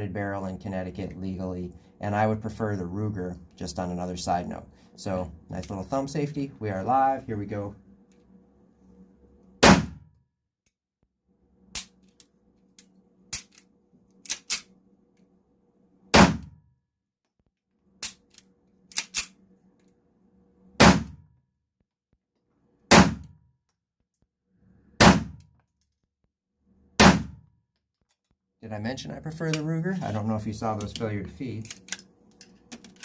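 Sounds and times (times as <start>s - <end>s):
pistol mechanism clicks and clanks: 11.7s - 14.7s, 18.0s - 19.9s, 30.8s - 33.0s.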